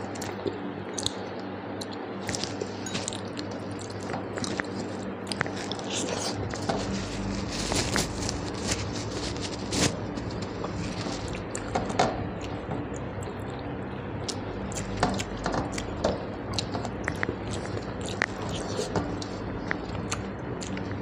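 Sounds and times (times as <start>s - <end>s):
chewing squelching and smacking: 0.1s - 21.0s
eating clicks: 11.3s - 21.0s.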